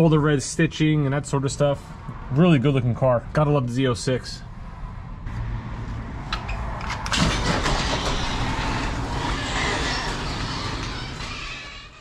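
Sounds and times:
garage door motor rattling and humming: 0:07.0 - 0:12.0.

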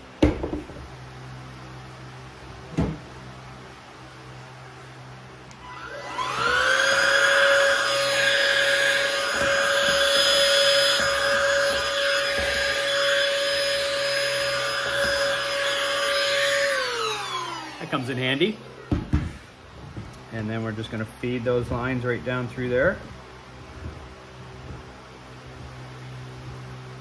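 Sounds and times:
handheld vacuum cleaner whine: 0:05.5 - 0:18.7.

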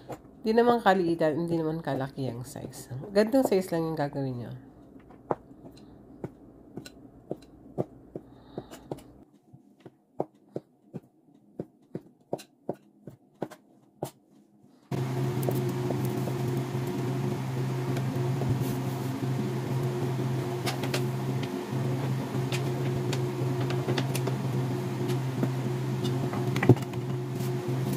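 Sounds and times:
steady machine hum: 0:00.0 - 0:09.3, 0:14.9 - 0:27.9.

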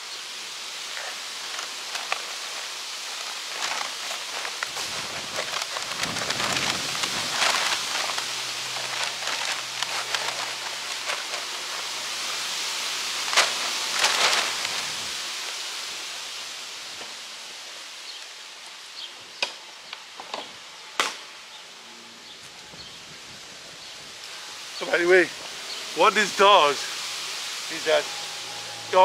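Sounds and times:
grass clippings rustling: 0:00.6 - 0:17.2, 0:23.8 - 0:29.0.

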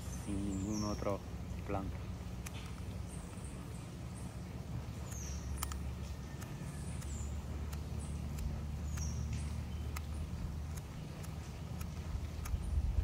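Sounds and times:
faint clicks: 0:05.0 - 0:12.7.

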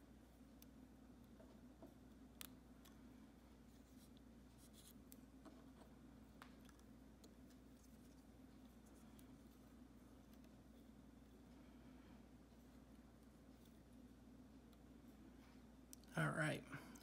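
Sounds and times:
low steady hum: 0:00.0 - 0:17.0
fingers handling thread: 0:00.1 - 0:11.6.

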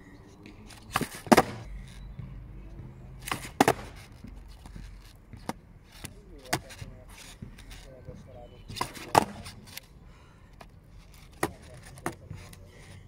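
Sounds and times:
skateboard ollie clacks on asphalt: 0:00.8 - 0:02.2, 0:03.2 - 0:07.9, 0:08.7 - 0:09.9, 0:10.6 - 0:12.9.

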